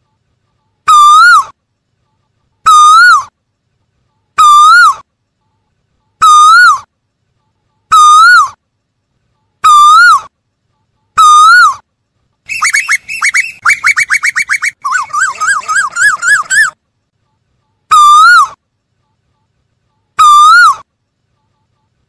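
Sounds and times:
bird bubbling notes: 12.5s - 16.8s
bird whistled call: 12.5s - 16.8s.

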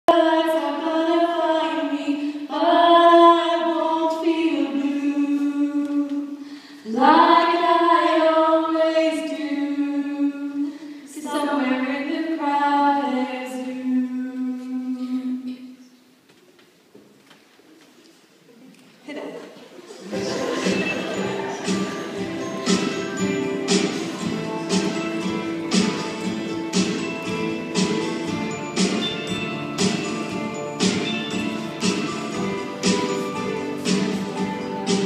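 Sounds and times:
girls singing together: 0.1s - 15.4s.

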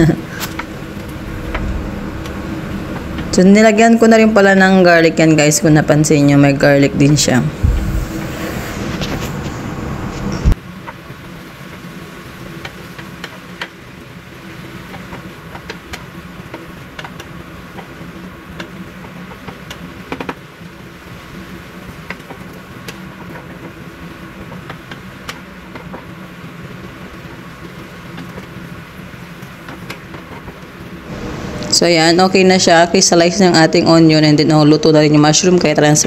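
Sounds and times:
low steady hum: 0.0s - 10.6s, 30.6s - 36.0s.

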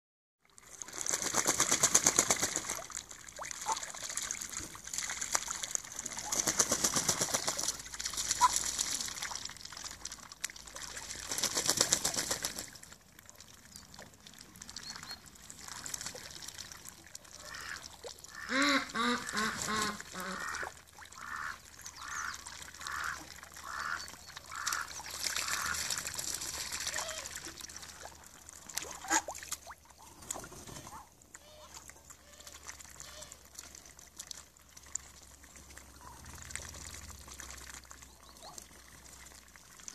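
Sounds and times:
ducks dabbling and splashing: 0.4s - 39.9s
duck quacking: 17.4s - 25.8s.

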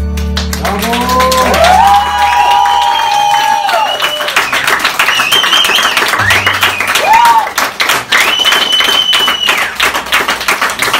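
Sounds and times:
onlookers clapping and applauding: 0.0s - 10.9s
shrill whistles: 2.3s - 7.4s, 8.1s - 9.9s.

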